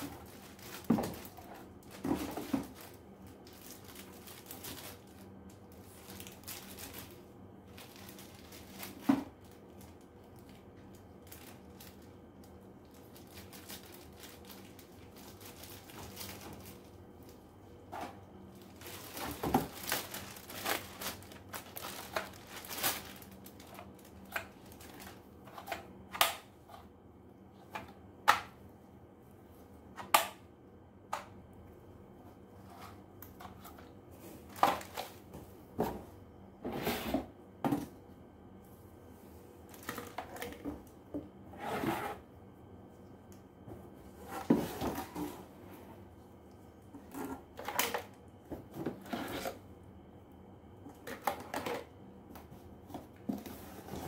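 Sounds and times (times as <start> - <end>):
plastic bags crinkling: 0.0 - 17.4, 18.0 - 25.3, 34.4 - 35.2, 39.7 - 40.7.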